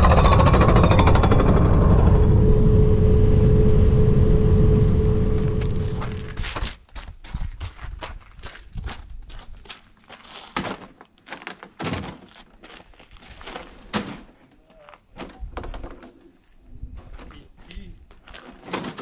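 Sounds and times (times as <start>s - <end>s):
footsteps crunching on snow: 4.8s - 11.4s
boxes thunking down: 10.5s - 12.5s, 13.5s - 16.1s, 18.4s - 19.0s.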